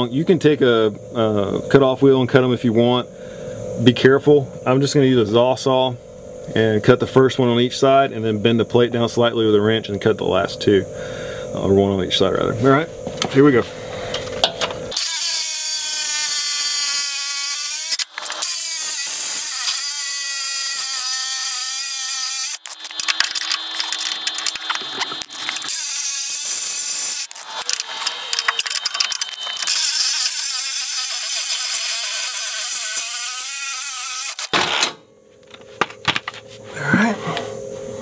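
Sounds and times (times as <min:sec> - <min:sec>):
reciprocating saw cutting steel: 0:14.9 - 0:35.0.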